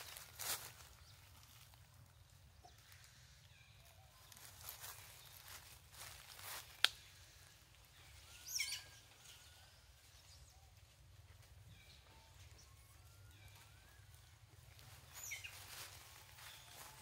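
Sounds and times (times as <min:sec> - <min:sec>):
bird chirps: 0:06.9 - 0:11.0, 0:11.6 - 0:17.0.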